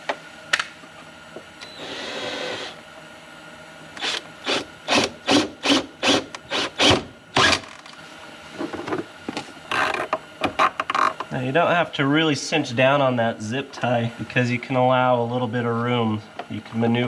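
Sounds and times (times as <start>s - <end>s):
cordless drill drilling plastic: 1.8s - 2.8s, 4.0s - 7.8s.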